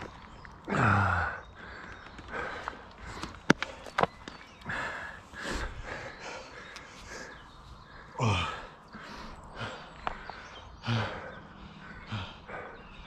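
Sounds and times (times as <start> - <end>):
person sighing heavily: 8.0 - 9.8.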